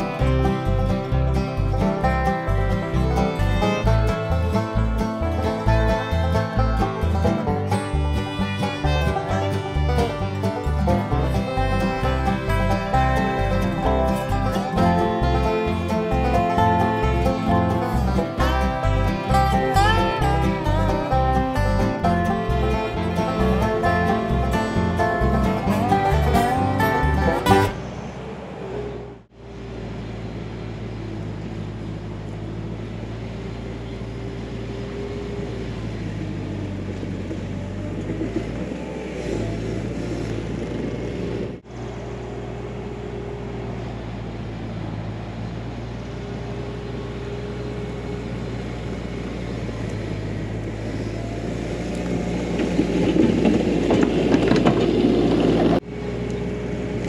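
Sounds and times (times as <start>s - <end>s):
banjo and guitar music: 0.0s - 27.9s
track loader diesel engine: 0.0s - 57.0s.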